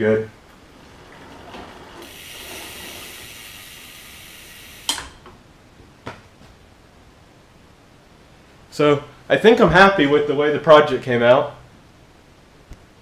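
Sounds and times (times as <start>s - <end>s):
bicycle chain and wheel whirring: 0.5s - 5.0s.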